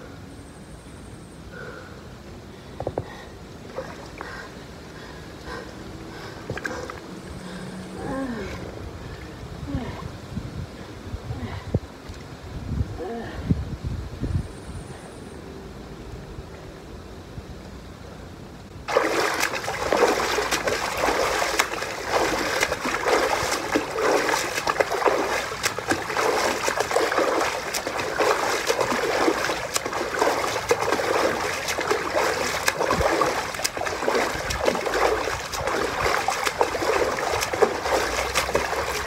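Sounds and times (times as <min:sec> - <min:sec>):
water splashing from kicking legs: 0:18.8 - 0:39.0.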